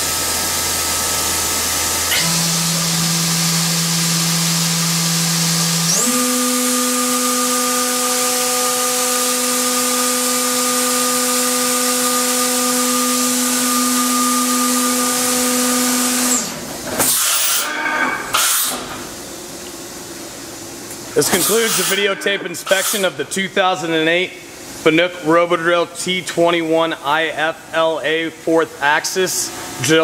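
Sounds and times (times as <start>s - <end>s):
machine spindle whine: 0.1s - 18.8s, 21.2s - 23.1s.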